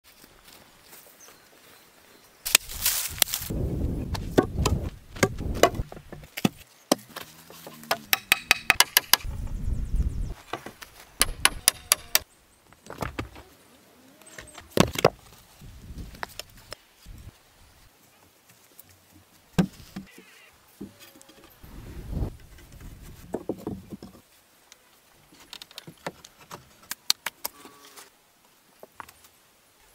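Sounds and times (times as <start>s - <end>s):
rustling and scraping in dry soil: 0.0s - 8.0s, 9.2s - 29.9s
wooden poles clicking and knocking: 4.1s - 9.3s, 10.4s - 13.4s, 19.6s - 20.1s, 22.3s - 24.2s.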